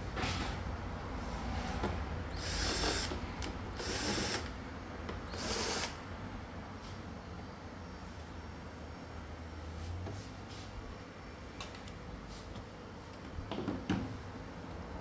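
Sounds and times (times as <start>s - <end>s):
cordless drill running in bursts: 2.3s - 4.5s, 5.3s - 6.0s.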